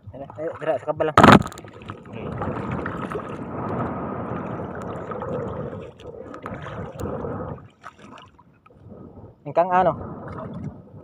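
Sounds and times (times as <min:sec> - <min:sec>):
shallow water splashing and sloshing: 0:00.0 - 0:11.0.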